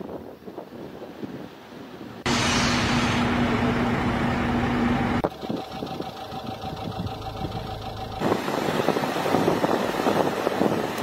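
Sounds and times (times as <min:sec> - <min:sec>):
construction machinery engines: 0:02.3 - 0:11.0.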